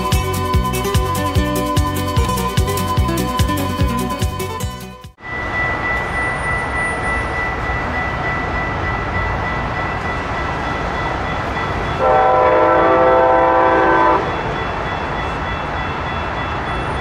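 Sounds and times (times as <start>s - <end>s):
level crossing warning bell: 0.0s - 17.0s
train horn chord: 12.0s - 14.4s.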